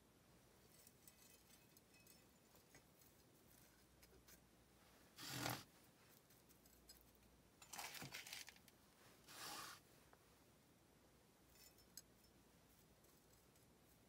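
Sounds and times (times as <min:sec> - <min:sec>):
metal trowel scraping potting mix: 0:05.2 - 0:05.7.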